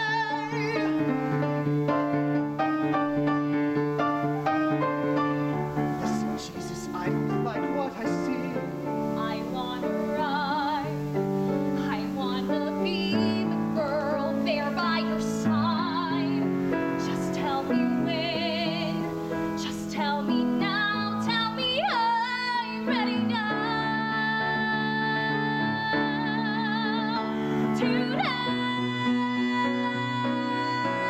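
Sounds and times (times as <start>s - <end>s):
woman singing a ballad: 0.0s - 1.6s, 8.9s - 31.0s
piano accompaniment: 0.0s - 31.0s.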